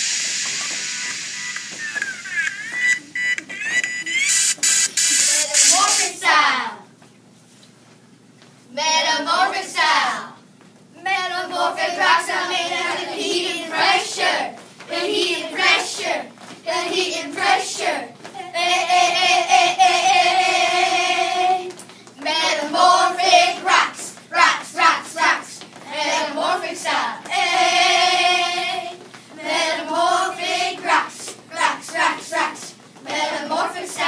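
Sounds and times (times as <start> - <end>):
children singing together: 16.8 - 21.7, 22.3 - 34.0.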